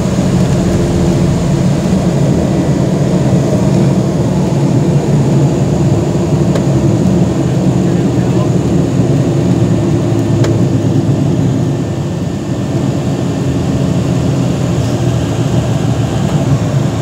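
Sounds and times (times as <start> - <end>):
aircraft engines and wheels rumbling: 0.0 - 17.0.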